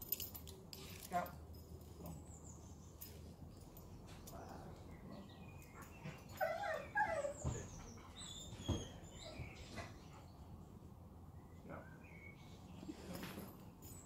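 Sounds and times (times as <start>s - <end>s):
dog whining: 6.1s - 10.0s.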